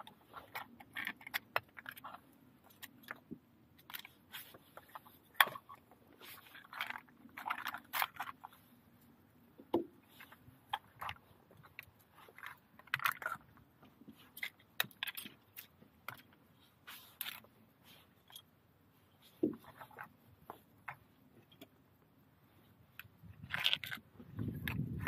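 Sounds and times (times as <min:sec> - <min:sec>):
shells clicking and scraping: 0:00.2 - 0:08.6, 0:14.2 - 0:18.5, 0:22.9 - 0:25.0.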